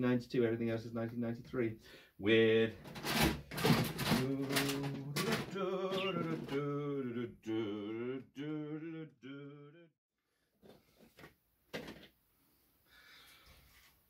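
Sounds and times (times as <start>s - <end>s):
plastic and cardboard rustling: 2.8s - 6.6s
man singing wavering notes: 4.2s - 9.8s.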